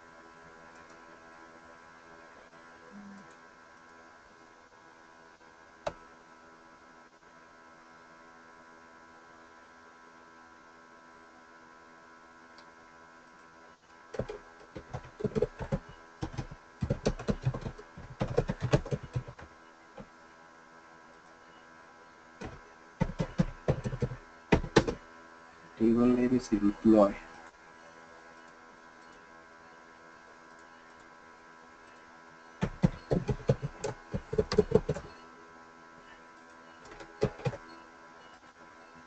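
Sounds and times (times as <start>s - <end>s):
steady electrical hum: 0.0s - 39.0s
computer keyboard typing: 14.1s - 19.5s, 22.4s - 25.0s, 32.6s - 35.2s, 36.8s - 37.7s.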